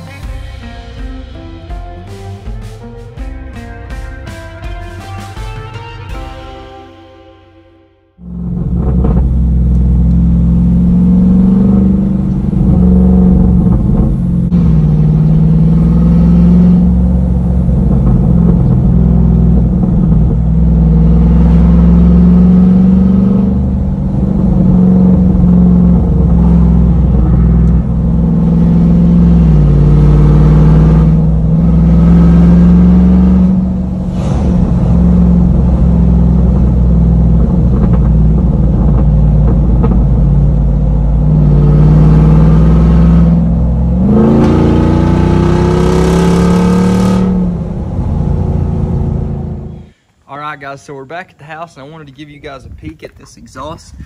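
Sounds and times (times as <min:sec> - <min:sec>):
loud engine revving while driving: 0:08.2 - 0:50.0.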